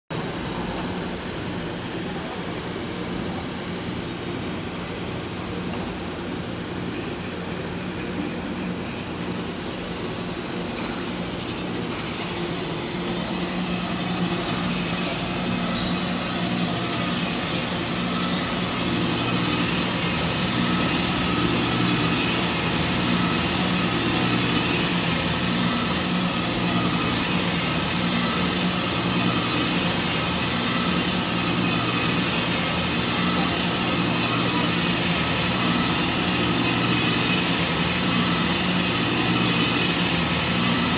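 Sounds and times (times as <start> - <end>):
abrasive belt grinding on metal: 9.1 - 40.9
electric motor humming: 10.5 - 40.9.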